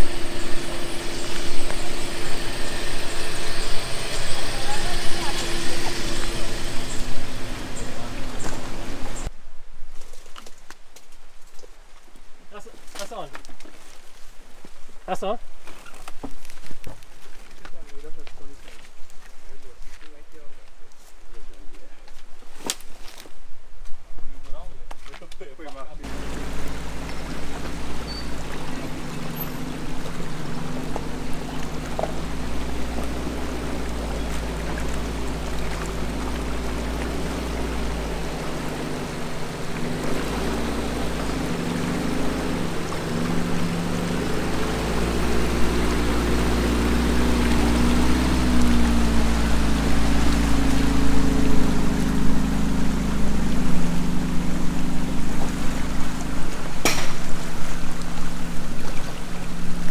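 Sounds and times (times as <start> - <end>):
off-road vehicle engines revving: 0.0 - 9.3, 26.0 - 59.9
river water rushing: 0.0 - 9.3, 26.0 - 59.9.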